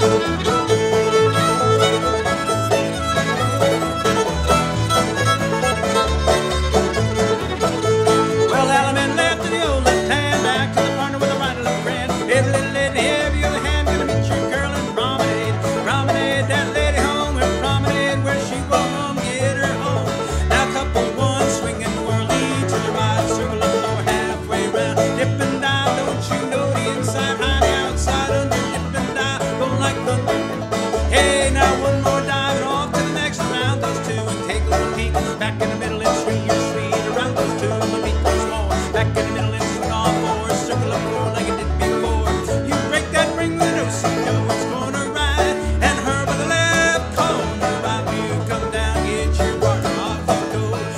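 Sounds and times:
banjo: 0:00.0 - 0:50.9
fiddle: 0:00.0 - 0:50.9
guitar: 0:00.0 - 0:50.9
low rhythm: 0:00.0 - 0:50.9.

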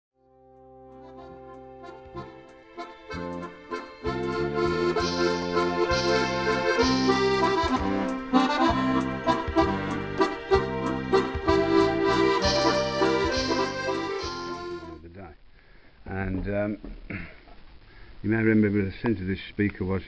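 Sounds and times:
accordion music: 0:00.4 - 0:15.0.

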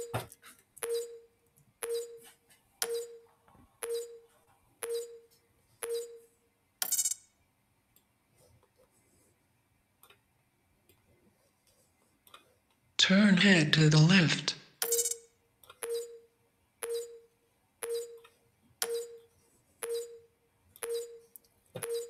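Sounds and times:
short electronic pings: 0:14.8 - 0:18.2, 0:18.8 - 0:19.2, 0:19.8 - 0:22.0.

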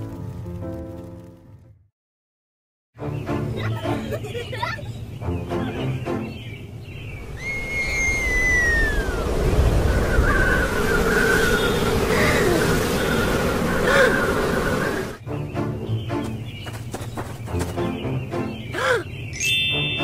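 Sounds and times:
cartoon wind rushing: 0:07.2 - 0:15.2
falling whistle: 0:07.3 - 0:15.2.

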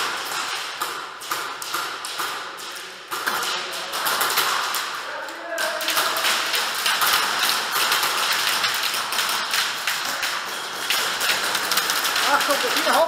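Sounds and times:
airsoft guns firing: 0:00.0 - 0:13.0
pellets striking plywood: 0:00.0 - 0:13.0.

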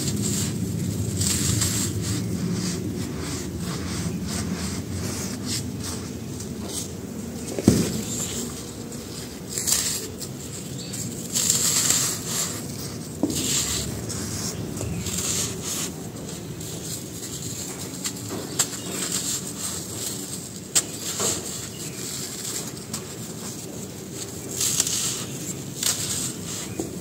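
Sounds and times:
cement chunks crunching by hand: 0:06.0 - 0:27.0.

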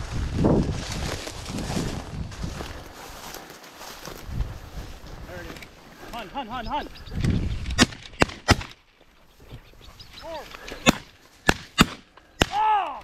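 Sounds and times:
birds flushing: 0:05.3 - 0:12.8
bird clucking calls: 0:06.4 - 0:07.4, 0:09.2 - 0:11.1
shotgun shots: 0:07.8 - 0:08.8, 0:10.8 - 0:12.6.

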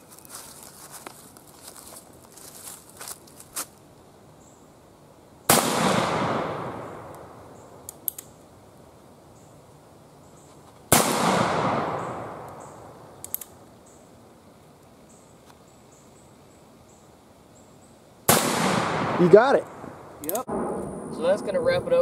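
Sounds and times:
revolver gunshots with echo: 0:05.5 - 0:07.4, 0:10.9 - 0:12.8, 0:18.3 - 0:19.6
faint clicks: 0:13.2 - 0:13.8.

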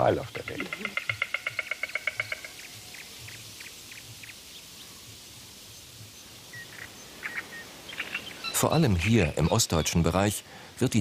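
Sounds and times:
stork clattering its bill: 0:00.4 - 0:02.7.

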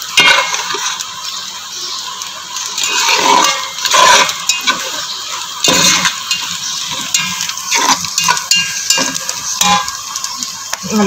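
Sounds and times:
seeds frying in oil: 0:00.0 - 0:11.0
spatula scraping a pan: 0:00.1 - 0:01.0, 0:02.8 - 0:10.1.

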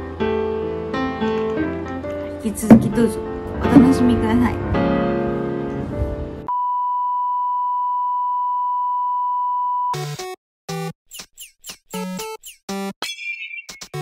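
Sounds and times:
soft background music: 0:00.0 - 0:06.5
jingle with falling chirps: 0:13.0 - 0:14.0.

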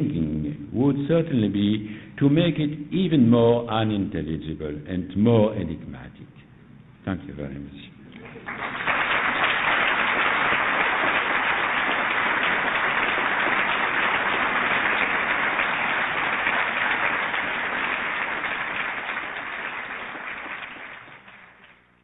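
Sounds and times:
audience applauding: 0:08.2 - 0:21.9.

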